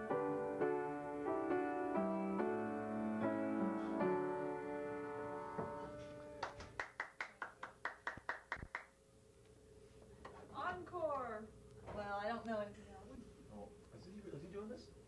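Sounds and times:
piano chords: 0.0s - 6.6s.

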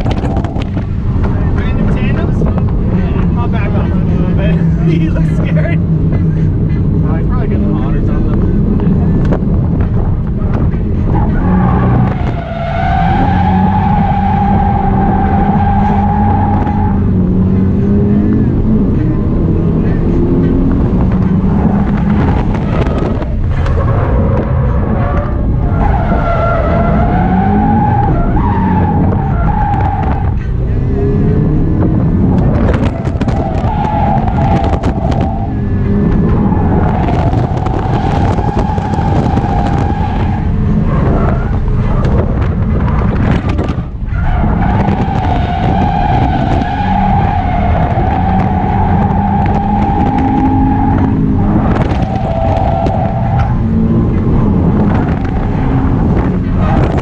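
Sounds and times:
car engine running hard: 0.0s - 57.0s
tyres squealing: 44.1s - 53.8s.

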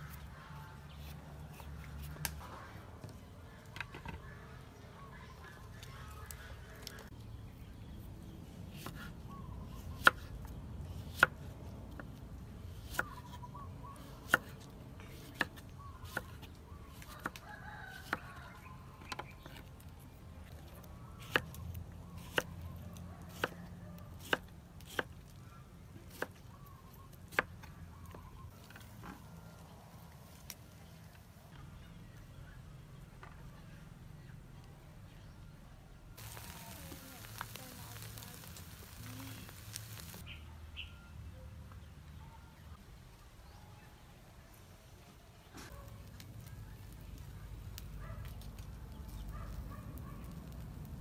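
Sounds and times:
meat sizzling on a grill: 36.2s - 40.2s, 46.0s - 51.0s
faint distant calls: 36.2s - 41.2s
bird chirps: 36.2s - 41.5s.

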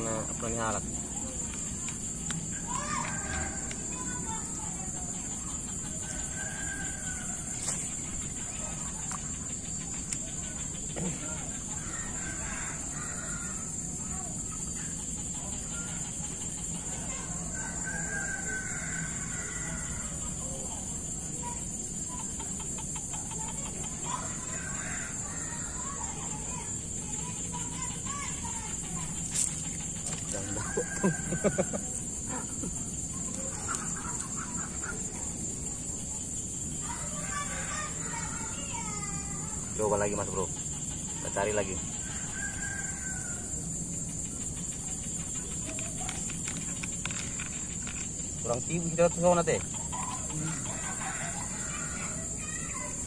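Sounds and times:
high-pitched insect chorus: 0.0s - 53.0s
steady high-pitched hiss: 0.0s - 53.0s
faint bird calls: 21.4s - 53.0s.

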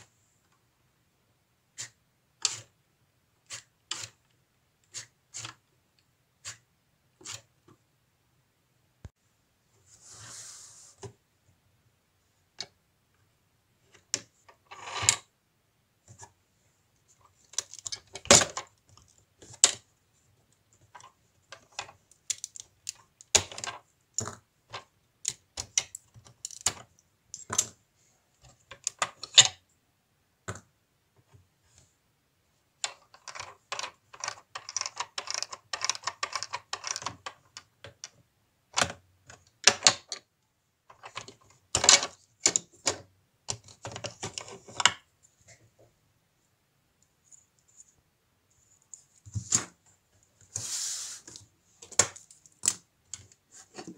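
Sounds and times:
plastic parts clicking: 17.3s - 19.9s, 20.8s - 27.8s, 32.8s - 40.3s, 40.9s - 45.0s.

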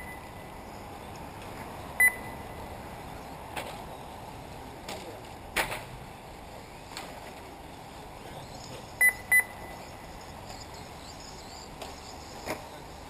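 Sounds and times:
loud electronic beeps: 2.0s - 2.4s, 9.0s - 10.0s.

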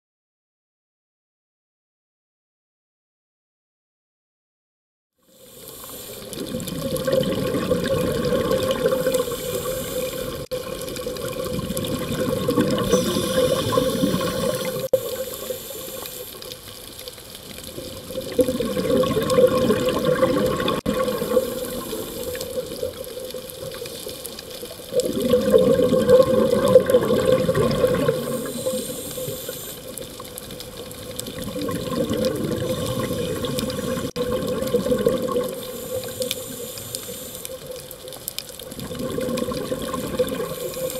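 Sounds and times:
underwater bubbles rushing: 6.1s - 40.9s.

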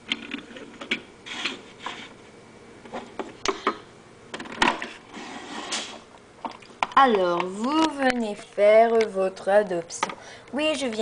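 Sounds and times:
handling rubbing and rustling: 0.2s - 3.4s.

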